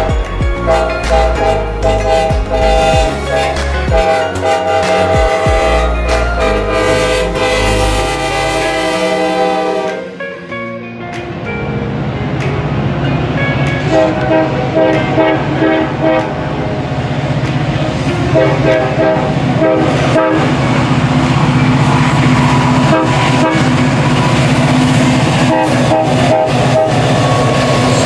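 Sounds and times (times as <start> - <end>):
train air horn blasts: 0.0 - 10.2, 13.8 - 16.7, 18.3 - 21.0, 22.6 - 24.4, 25.4 - 28.0
diesel locomotive drone: 0.0 - 28.0.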